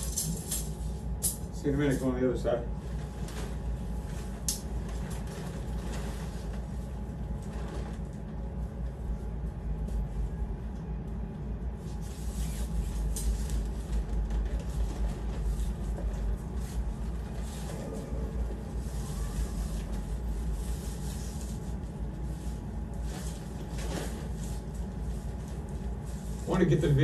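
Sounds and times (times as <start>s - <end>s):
low rumble: 2.6s - 27.0s
tent fabric rustling: 12.0s - 26.6s.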